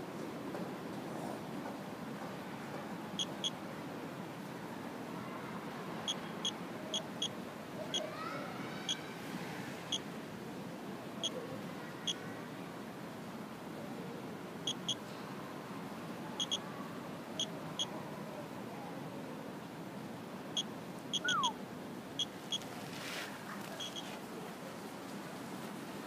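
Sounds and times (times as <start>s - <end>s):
geiger counter beeping: 20.6s - 21.6s.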